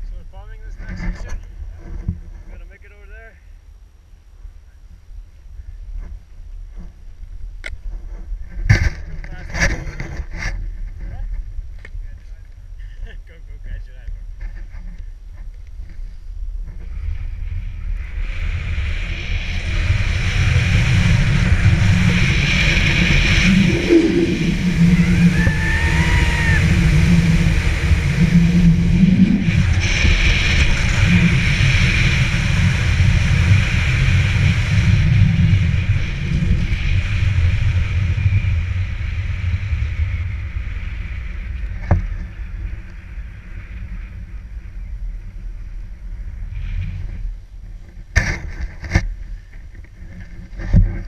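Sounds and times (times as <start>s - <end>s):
wind on microphone: 0.0s - 51.0s.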